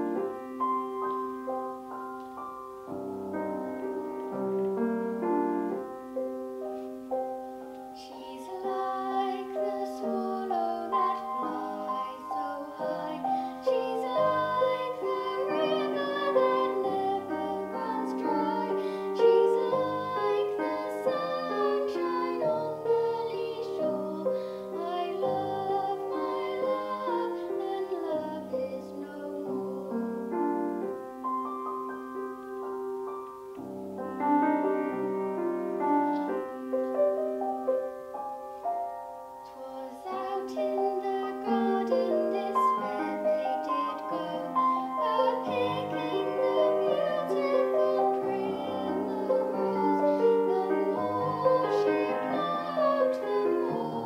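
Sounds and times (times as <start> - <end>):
grand piano: 0.0 - 54.0
girl singing: 7.9 - 31.0, 39.5 - 54.0.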